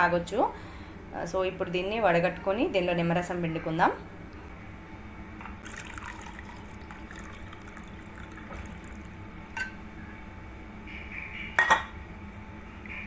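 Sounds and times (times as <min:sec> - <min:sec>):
liquid trickling into glass: 0:05.6 - 0:09.7.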